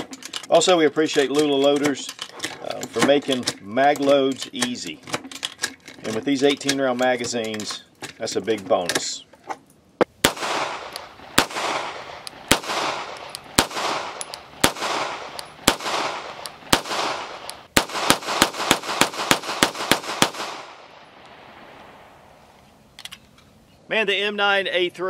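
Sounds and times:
pistol shots with echo: 10.2 - 21.1.

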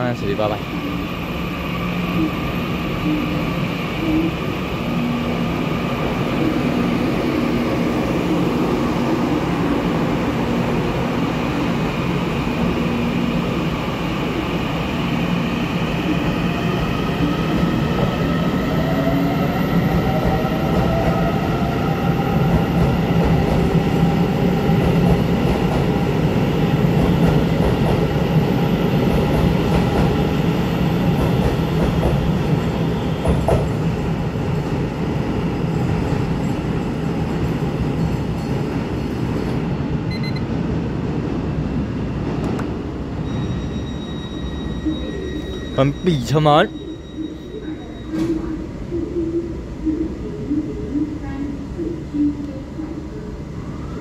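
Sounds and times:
train wheels rumbling on rails: 18.8 - 39.7.

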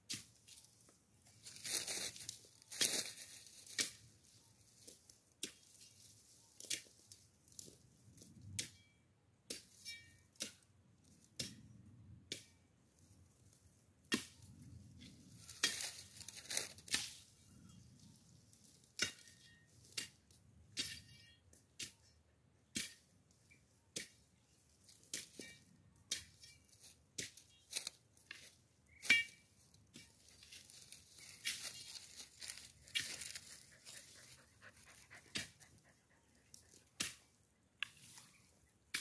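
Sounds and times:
dry stems crackling and tearing: 1.4 - 4.0, 15.4 - 17.3, 27.7 - 28.5, 30.0 - 35.8
machete chopping brush: 37.0 - 39.0.

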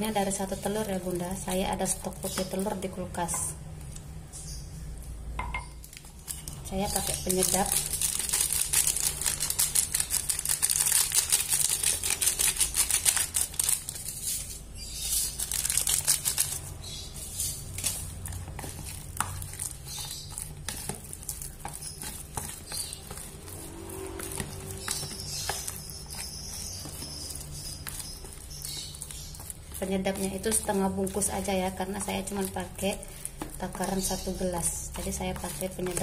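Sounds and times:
plastic sachet crinkling: 5.9 - 14.6, 15.2 - 16.9
spoon stirring soft dough: 6.0 - 36.0.

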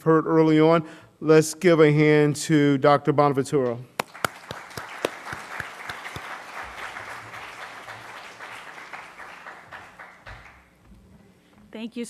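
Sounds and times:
audience applauding: 4.0 - 10.7
loud single claps: 4.0 - 10.7.

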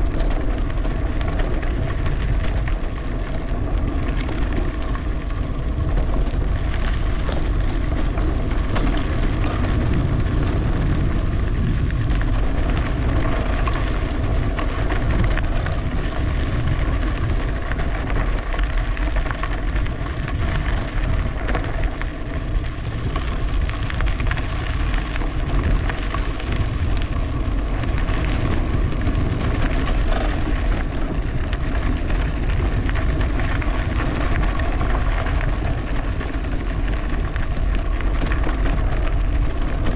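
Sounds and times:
tyres crackling over trail: 0.0 - 39.9
wind buffeting microphone: 0.0 - 39.9.

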